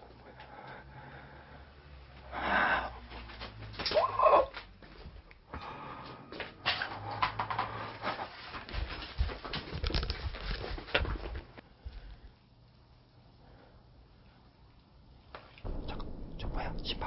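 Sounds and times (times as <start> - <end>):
camera handling rustling and clicks: 9.8 - 11.1.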